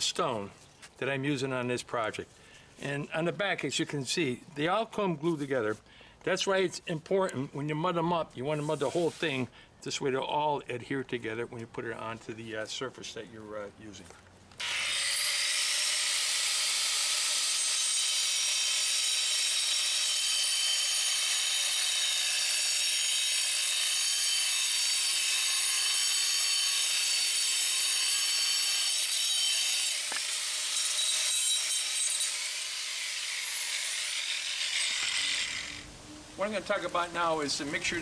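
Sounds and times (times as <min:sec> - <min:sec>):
angle grinder cutting stone: 0:14.6 - 0:35.9.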